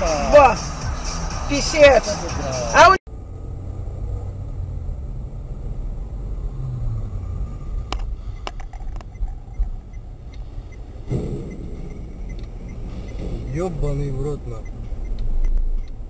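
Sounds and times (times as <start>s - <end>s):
car interior rumble: 0.0s - 16.0s
sharp clicks: 7.9s - 13.6s, 14.6s - 16.0s.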